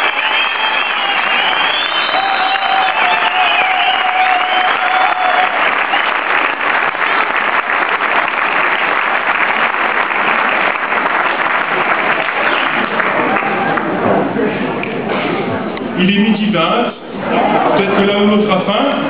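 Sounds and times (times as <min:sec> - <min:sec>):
crowd applauding: 0:00.0 - 0:15.0.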